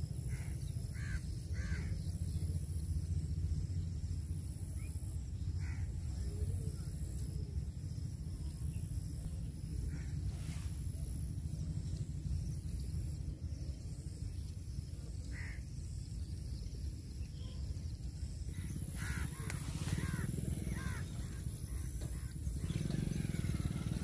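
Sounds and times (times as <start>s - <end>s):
short bird calls: 18.6s - 23.8s.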